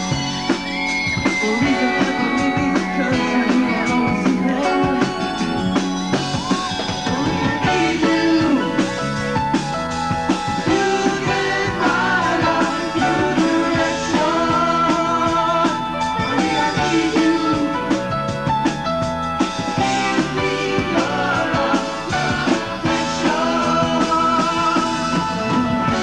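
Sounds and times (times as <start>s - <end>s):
drums beating: 0.0s - 26.0s
rock band playing: 0.0s - 26.0s
man singing: 1.4s - 5.6s, 7.0s - 9.0s, 10.6s - 18.0s, 20.4s - 26.0s.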